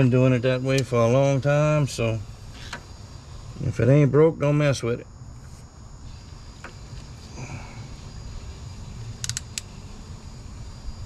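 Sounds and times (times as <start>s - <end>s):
crimping tool clicks: 9.2s - 9.7s.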